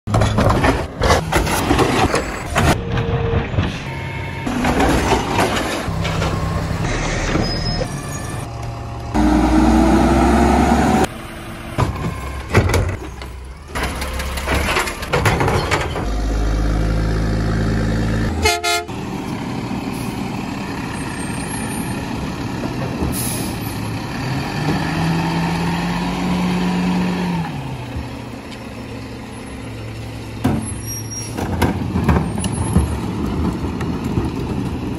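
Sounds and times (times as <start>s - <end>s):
diesel engine revving: 5.8s - 12.5s, 15.9s - 34.9s.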